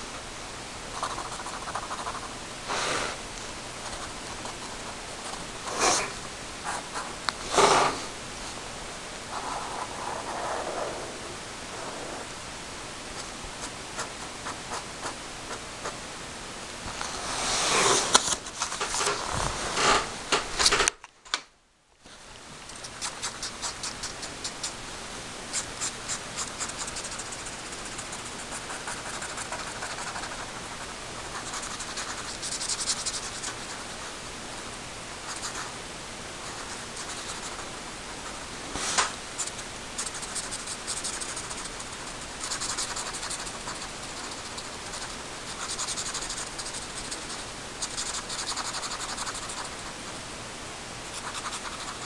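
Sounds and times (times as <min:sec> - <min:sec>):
steady hiss: 0:00.0 - 0:20.9, 0:22.0 - 0:52.0
pen scratching on paper: 0:01.0 - 0:02.3, 0:03.8 - 0:08.0, 0:25.6 - 0:33.9, 0:36.4 - 0:38.4, 0:39.4 - 0:49.9, 0:51.1 - 0:52.0
rubbing and scraping: 0:03.8 - 0:08.1, 0:16.9 - 0:20.8.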